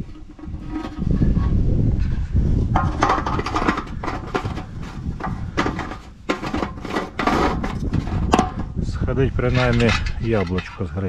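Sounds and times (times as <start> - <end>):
fuel cap scraping clicks: 0.0 - 1.6, 2.7 - 8.8.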